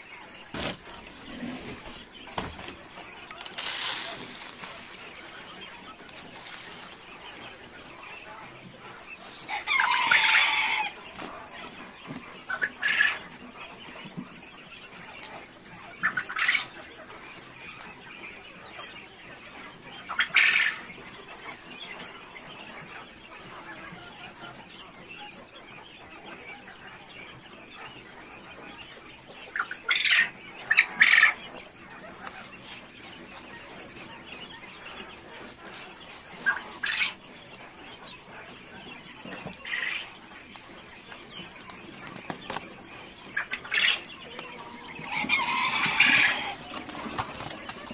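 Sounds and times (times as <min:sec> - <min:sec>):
grain rustling in plastic tray: 0:00.5 - 0:07.9.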